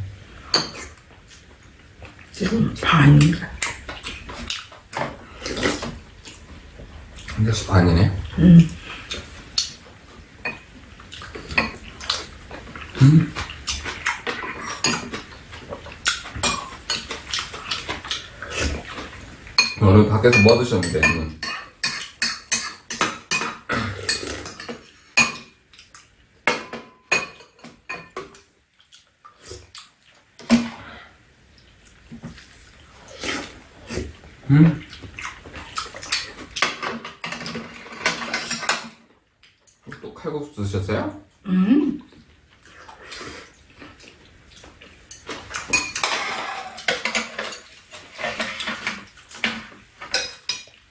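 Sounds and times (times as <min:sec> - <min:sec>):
spoons and chopsticks clinking bowls: 0:13.0 - 0:15.3, 0:19.6 - 0:28.3, 0:45.1 - 0:50.8.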